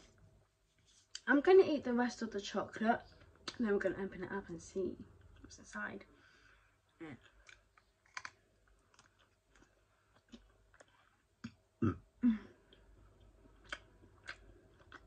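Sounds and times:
chewing chocolate shell crunches: 7.2s - 11.1s
throat sounds: 11.4s - 12.5s.

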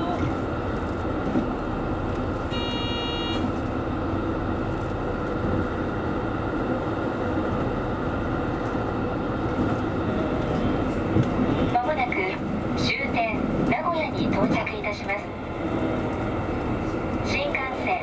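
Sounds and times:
diesel engine drone: 0.0s - 18.0s
train wheels rumbling on rails: 0.0s - 18.0s
high ringing tone: 2.5s - 3.4s.

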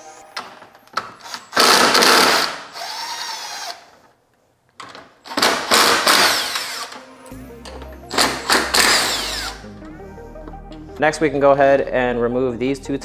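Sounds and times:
power tool removing bolts: 1.0s - 4.0s, 4.8s - 7.0s, 8.1s - 9.6s.

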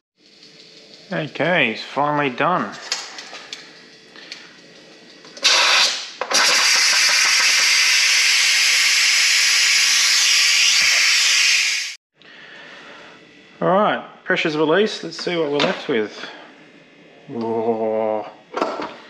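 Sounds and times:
pressure cooker steam hiss: 5.4s - 12.0s.

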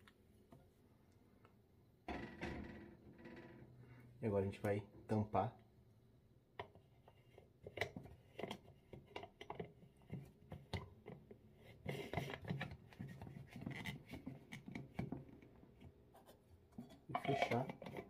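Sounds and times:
jar lid being screwed on: 16.8s - 18.0s.

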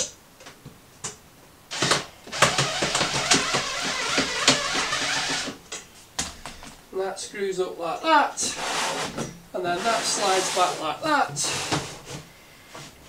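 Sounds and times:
screw scraping into wood: 1.7s - 5.6s, 8.5s - 10.8s.

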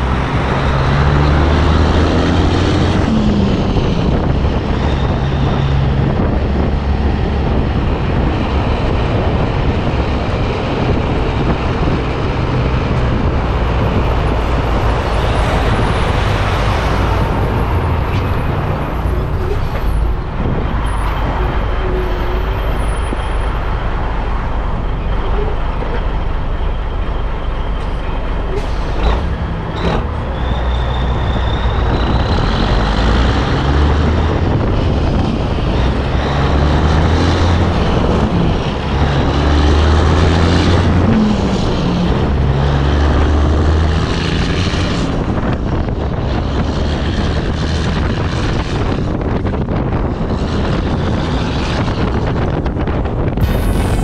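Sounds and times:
road noise: 0.0s - 54.0s
trailer rolling rumble: 0.0s - 54.0s
truck diesel engine revving: 0.0s - 54.0s.

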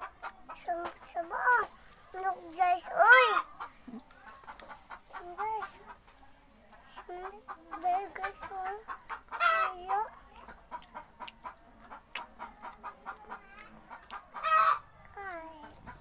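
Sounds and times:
chickens clucking: 0.0s - 16.0s
chicken squawking: 8.7s - 10.0s, 13.9s - 14.9s.

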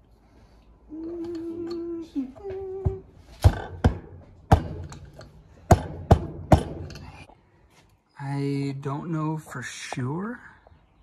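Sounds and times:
person humming: 0.9s - 3.2s
knocks on a pipe: 5.7s - 7.0s.

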